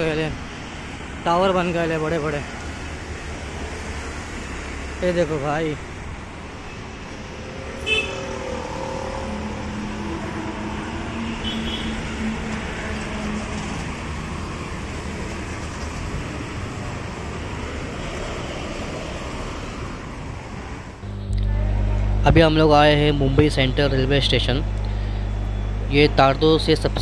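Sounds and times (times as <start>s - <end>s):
street traffic passing: 0.0s - 27.0s.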